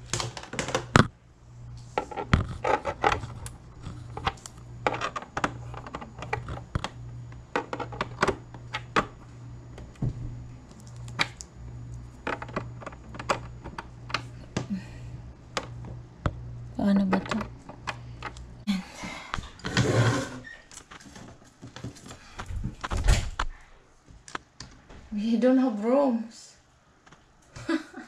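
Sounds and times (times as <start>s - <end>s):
low hum: 0.0s - 20.4s.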